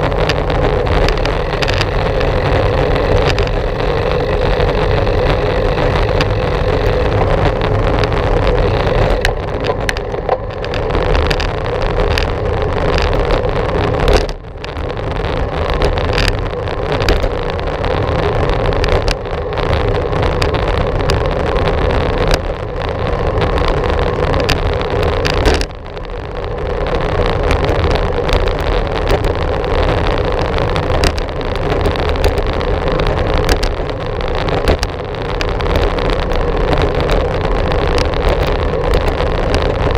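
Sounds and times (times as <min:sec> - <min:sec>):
wind rushing: 0:00.0 - 0:14.2
bicycle tyre noise: 0:00.0 - 0:39.9.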